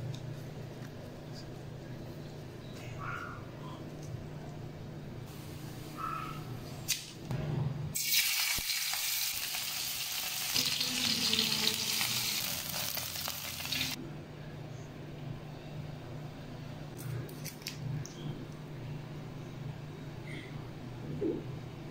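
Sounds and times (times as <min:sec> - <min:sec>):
food sizzling in hot oil: 0:08.0 - 0:14.0.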